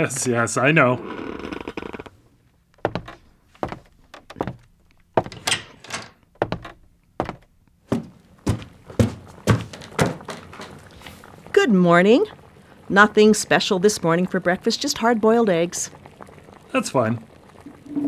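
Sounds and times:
door sounds: 0:02.8 - 0:10.8
thunks and knocks: 0:02.9 - 0:04.6, 0:05.2 - 0:10.7.

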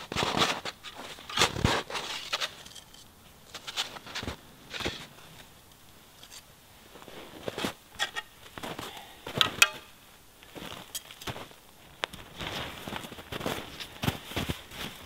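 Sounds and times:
footsteps crunching in snow: 0:00.0 - 0:02.7, 0:03.5 - 0:05.5, 0:06.8 - 0:07.8, 0:08.4 - 0:15.0.

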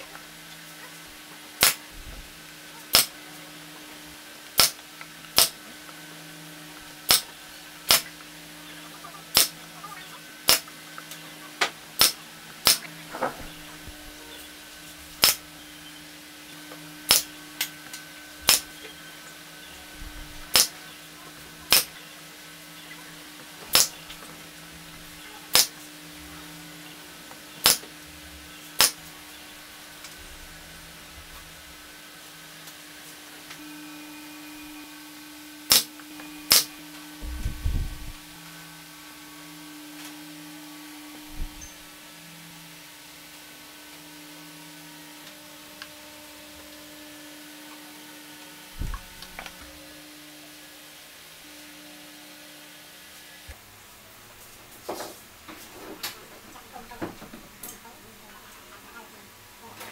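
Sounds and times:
steady low hum: 0:00.0 - 0:59.9
nail gun firing: 0:01.6 - 0:01.8, 0:02.9 - 0:03.1, 0:04.6 - 0:05.6, 0:07.0 - 0:07.3, 0:07.9 - 0:08.1, 0:09.3 - 0:09.6, 0:10.4 - 0:10.7, 0:12.0 - 0:12.8, 0:15.2 - 0:15.4, 0:17.1 - 0:17.3, 0:18.4 - 0:18.7, 0:20.5 - 0:20.7, 0:21.7 - 0:21.9, 0:23.7 - 0:23.9, 0:25.5 - 0:25.7, 0:27.6 - 0:27.9, 0:28.8 - 0:29.0, 0:35.7 - 0:35.9, 0:36.5 - 0:36.7.

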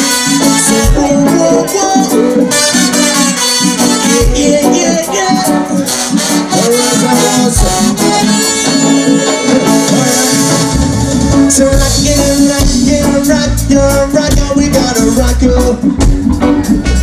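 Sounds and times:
congas: 0:00.0 - 0:17.0
electric guitars: 0:00.0 - 0:17.0
deep bass notes: 0:09.5 - 0:17.0.

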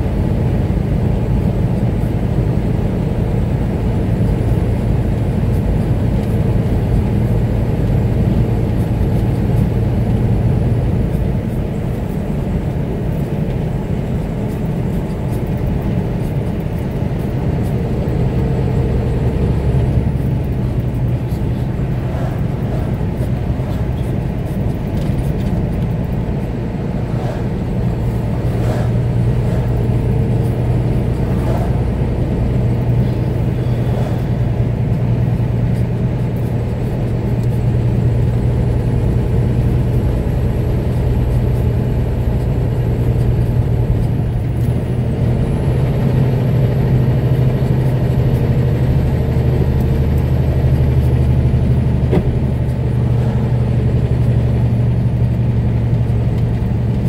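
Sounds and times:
vehicle engine drone: 0:00.0 - 0:57.0
road hiss: 0:26.2 - 0:36.6.

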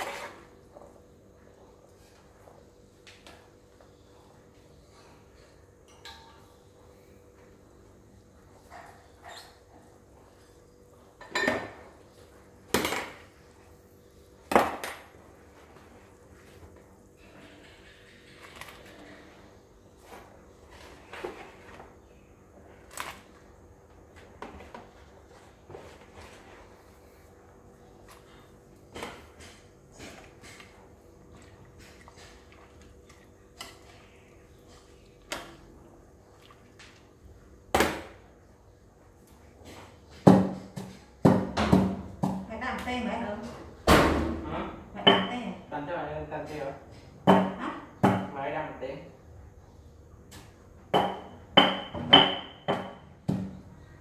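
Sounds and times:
metal spoon scraping a pot: 0:00.0 - 0:00.5
kitchenware clattering knocks: 0:11.2 - 0:11.8, 0:50.9 - 0:53.6.

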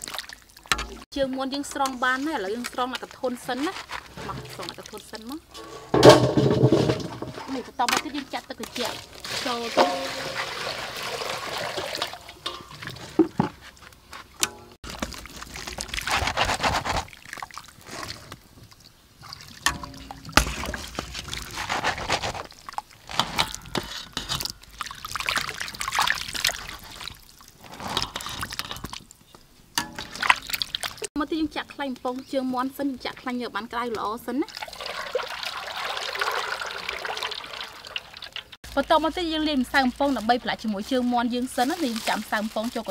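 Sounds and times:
water splashing into steel basin: 0:00.0 - 0:01.0, 0:04.2 - 0:13.5, 0:19.2 - 0:21.9, 0:22.5 - 0:29.1, 0:29.8 - 0:31.1, 0:34.4 - 0:39.0.

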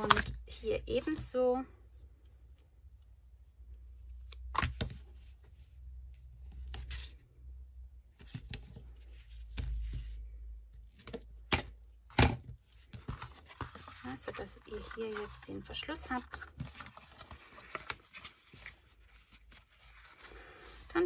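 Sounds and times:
tape and card rustling: 0:12.8 - 0:21.0.

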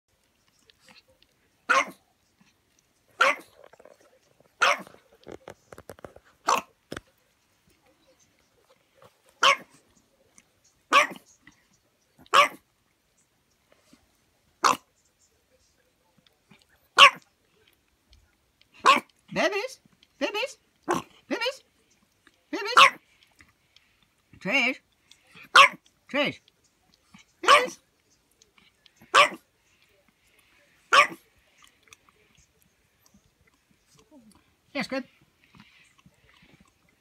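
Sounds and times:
dog barking: 0:01.7 - 0:02.0, 0:03.2 - 0:03.6, 0:04.6 - 0:05.0, 0:06.4 - 0:06.7, 0:09.4 - 0:09.8, 0:10.9 - 0:11.3, 0:12.2 - 0:12.6, 0:14.6 - 0:14.9, 0:17.0 - 0:17.3, 0:18.8 - 0:19.1, 0:22.7 - 0:23.0, 0:25.4 - 0:25.8, 0:27.4 - 0:27.8, 0:29.0 - 0:29.4, 0:30.9 - 0:31.2.

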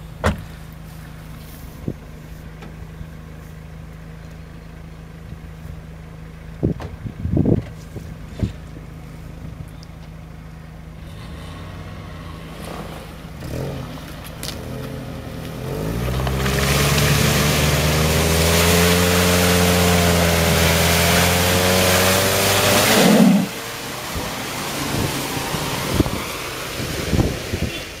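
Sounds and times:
suv engine idling and revving: 0:00.0 - 0:28.0
tyres spraying mud: 0:11.0 - 0:28.0.

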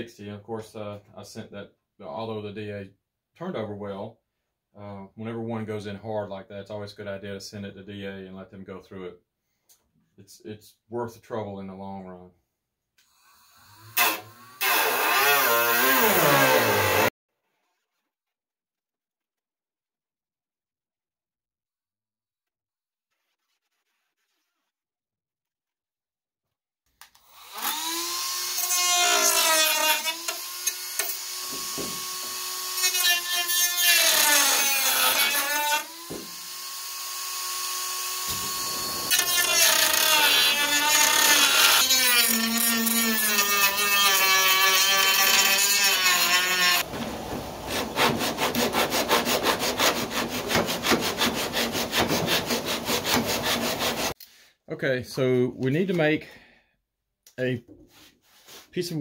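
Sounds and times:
rhythmic rasping of wood: 0:28.9 - 0:34.3, 0:44.8 - 0:54.2
power tool motor whining: 0:35.9 - 0:43.0.

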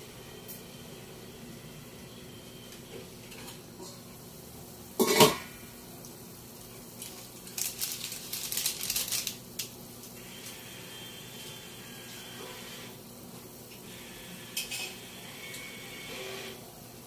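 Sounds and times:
cookware clatter: 0:05.0 - 0:05.5.

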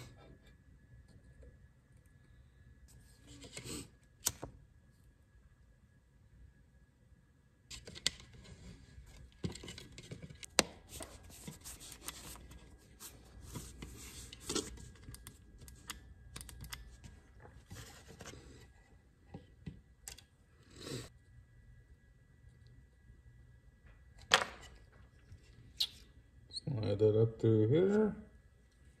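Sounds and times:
rustles and scrapes: 0:07.7 - 0:15.7, 0:16.9 - 0:19.0.

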